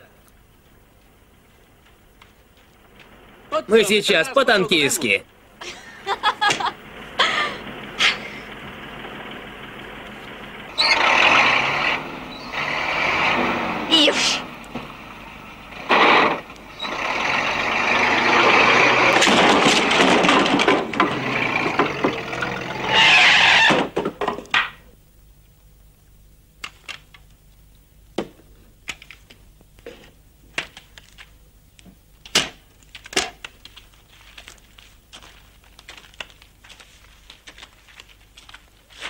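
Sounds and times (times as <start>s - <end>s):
truck engine running loudly: 6.8s - 23.5s.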